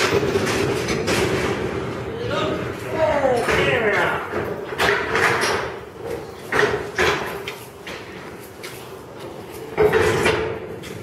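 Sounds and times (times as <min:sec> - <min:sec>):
loud metal clanks and bangs: 0:00.0 - 0:05.9.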